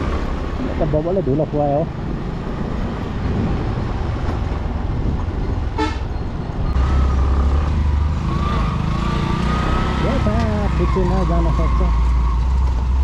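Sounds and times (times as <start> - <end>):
scooter engine and wind rumble: 0.0 - 11.6
scooter horn toot: 5.8 - 6.1.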